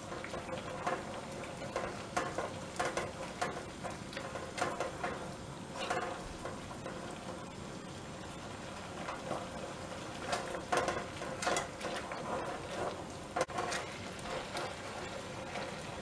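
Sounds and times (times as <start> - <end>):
spatula scraping a pan: 0.0 - 7.5, 8.8 - 16.0
syrup sizzling and bubbling: 0.0 - 16.0.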